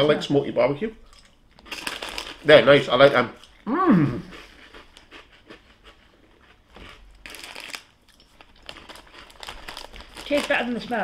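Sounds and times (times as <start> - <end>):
chewing crunchy snacks: 1.0 - 11.0
crinkly rustle: 7.2 - 11.0.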